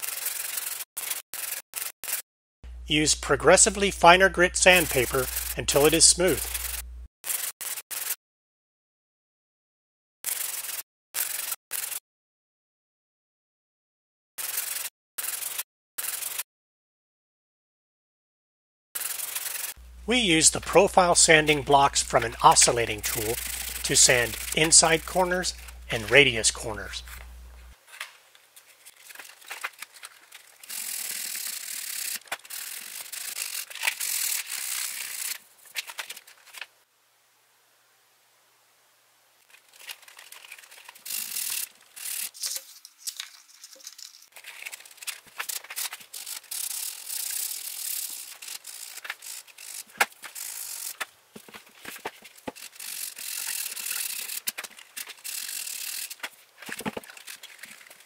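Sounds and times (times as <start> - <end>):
sandpaper rasping on plastic: 4.7 - 8.2, 44.4 - 51.0.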